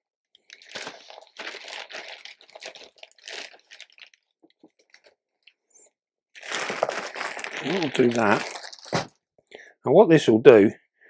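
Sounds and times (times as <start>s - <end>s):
plastic bag crinkling: 0.4s - 5.6s, 6.4s - 9.1s
damp moss rustling: 7.2s - 9.0s.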